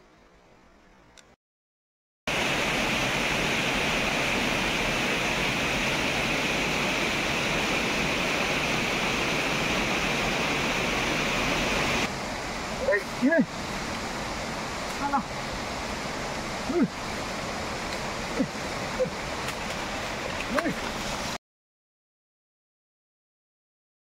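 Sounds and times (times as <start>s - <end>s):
faint outdoor hiss: 0.0s - 1.4s, 2.3s - 21.4s
flowing water rushing: 2.3s - 21.4s.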